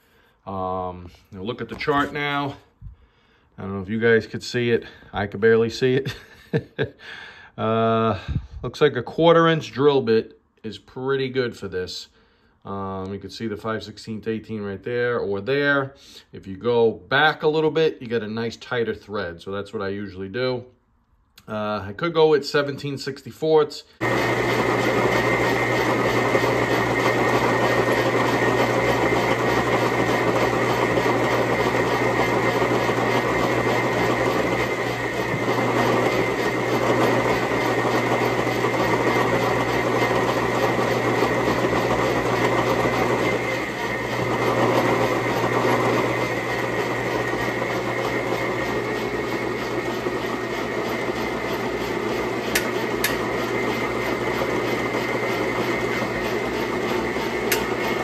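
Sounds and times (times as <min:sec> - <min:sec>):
metal lathe drilling into steel: 0:24.0 - 0:58.0.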